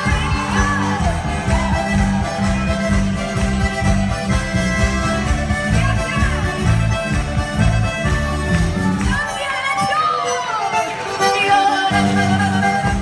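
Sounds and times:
pulsing bass beat: 0.0s - 9.2s
accordion: 0.0s - 13.0s
live folk-pop band: 0.0s - 13.0s.

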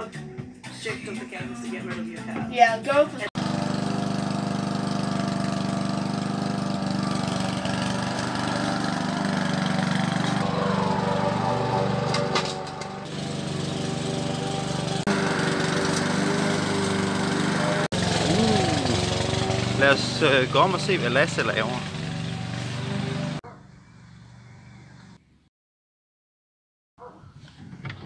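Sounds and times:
lawn mower cutting grass: 3.3s - 23.4s.

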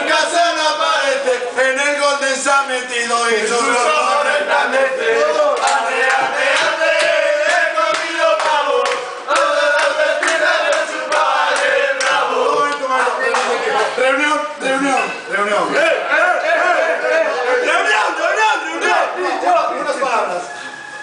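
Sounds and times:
men singing and chanting: 0.0s - 14.0s, 15.7s - 19.5s
hand claps: 5.5s - 13.6s
men shouting: 15.7s - 19.9s.

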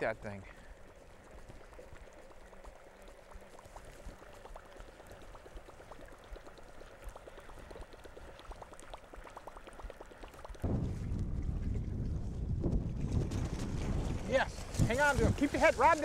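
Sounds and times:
small irregular ticks: 0.0s - 10.6s
choppy water splashing and gurgling: 0.6s - 16.0s.

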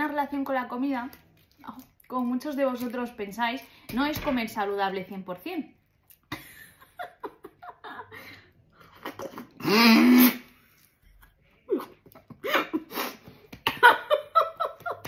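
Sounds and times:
woman laughing: 6.3s - 9.6s, 11.7s - 13.0s, 13.6s - 15.0s.

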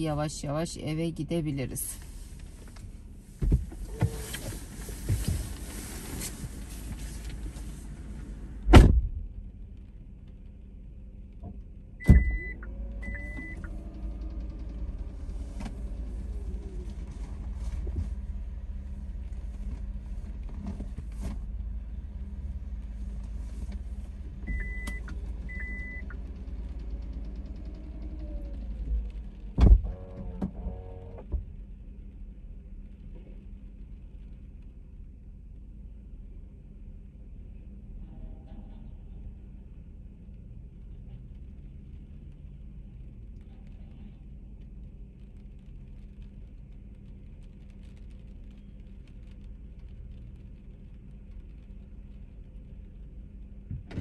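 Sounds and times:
steady low rumble: 0.0s - 54.0s
rain hissing: 1.8s - 8.6s
car door opening: 3.4s - 7.4s, 8.6s - 9.2s, 12.0s - 12.5s
car door thudding shut: 8.7s - 9.2s
short electronic car beeps: 12.0s - 13.7s, 24.5s - 26.2s.

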